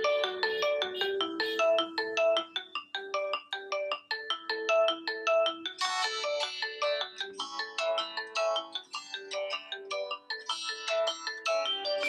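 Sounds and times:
phone ringtone melody: 0.0 - 12.0.

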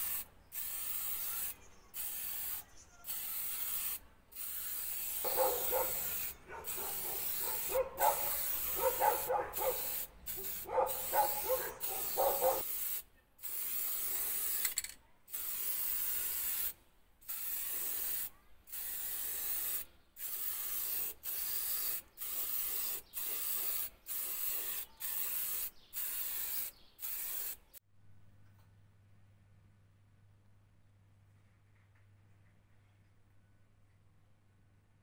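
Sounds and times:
spray paint can hissing: 0.0 - 27.8.

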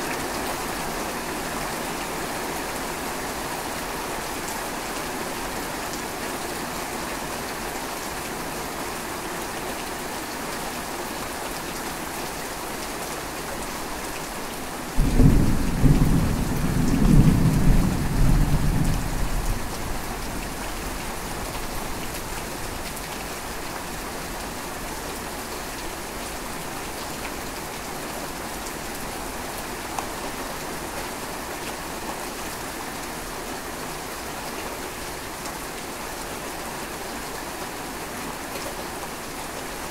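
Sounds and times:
steady rain: 0.0 - 39.9
thunder clap rumbling: 15.0 - 20.0.

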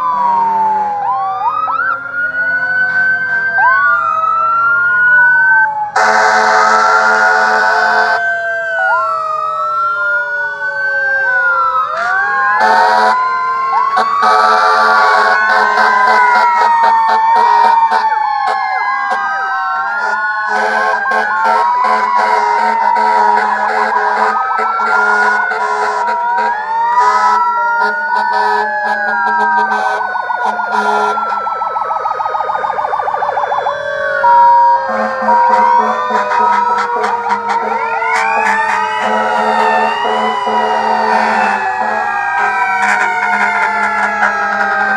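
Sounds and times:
fire engine sirens wailing: 0.0 - 44.9
horn blasts: 6.0 - 8.2, 12.6 - 13.2, 20.0 - 31.4, 34.8 - 44.9.

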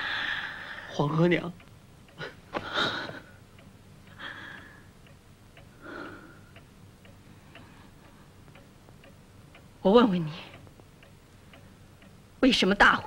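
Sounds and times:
clock ticking: 1.5 - 13.0
soft breathy sounds: 5.6 - 8.6.

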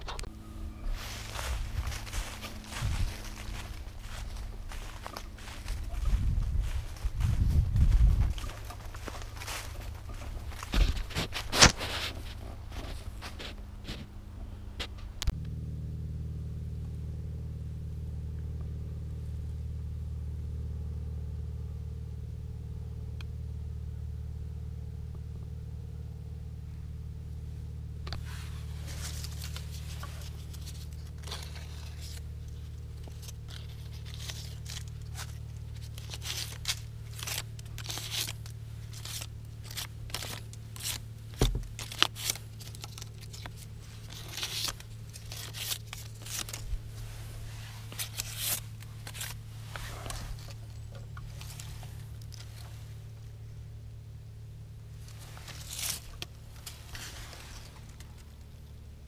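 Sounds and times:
rustling and clicking handling noises: 0.0 - 14.1, 28.0 - 53.2, 55.0 - 58.8
car engine idling: 0.0 - 59.0.

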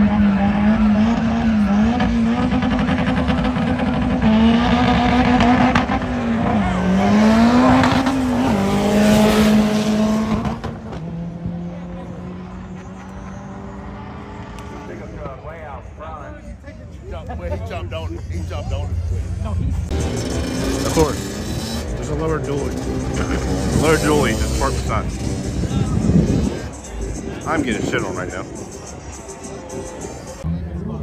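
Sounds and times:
car engine revving high: 0.0 - 15.2, 19.8 - 28.7.

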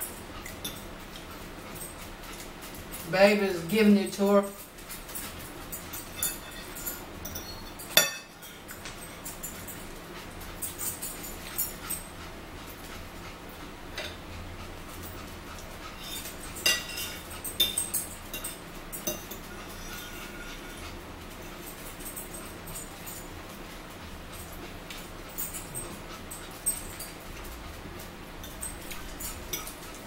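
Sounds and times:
forks clinking on plates: 0.0 - 3.1, 3.7 - 12.1, 16.0 - 23.3, 24.3 - 27.7, 28.4 - 30.0.

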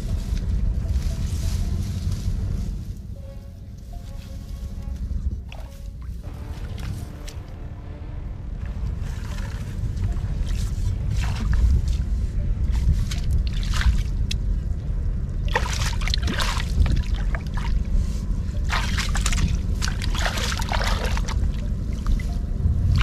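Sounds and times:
low rumble: 0.0 - 23.0
water splashing and sloshing: 5.4 - 23.0.

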